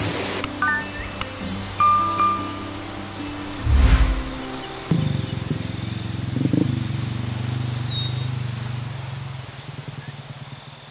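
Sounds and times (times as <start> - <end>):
low sustained tones: 0.1 - 8.1
insects chirring: 0.4 - 10.2.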